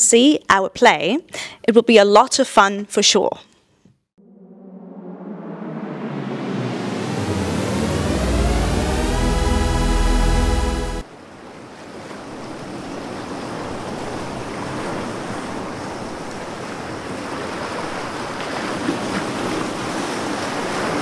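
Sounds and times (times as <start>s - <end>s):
music: 4.2s - 11.0s
ocean surf rushing: 4.2s - 11.0s.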